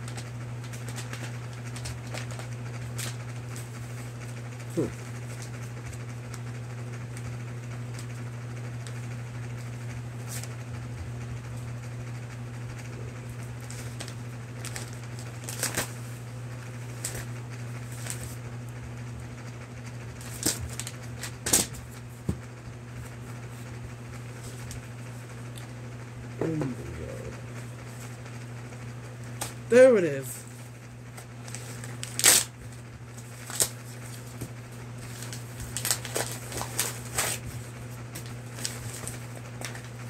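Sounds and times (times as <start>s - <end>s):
package crinkling: 13.6s - 15.9s, 31.4s - 37.4s, 38.2s - 40.0s
low hum: 22.6s - 32.2s.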